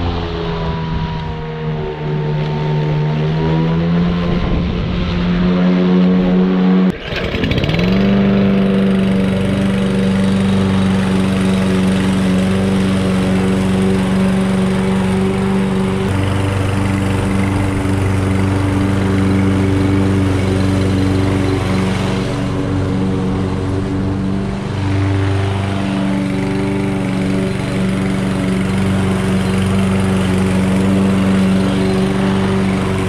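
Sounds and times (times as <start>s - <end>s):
lawn mower running: 0.0s - 33.0s.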